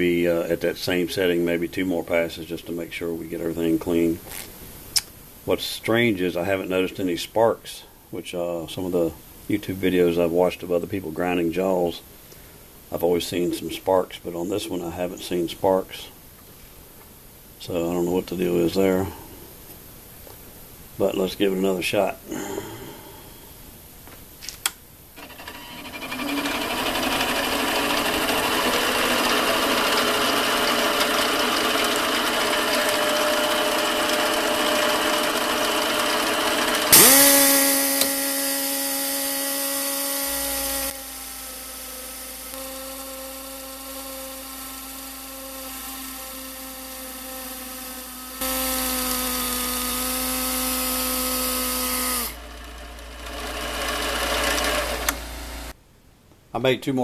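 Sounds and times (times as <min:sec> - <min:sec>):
mini lathe running: 0:25.2 - 0:55.7
grinder high whine: 0:25.2 - 0:55.8
die grinder air hiss: 0:36.8 - 0:52.4.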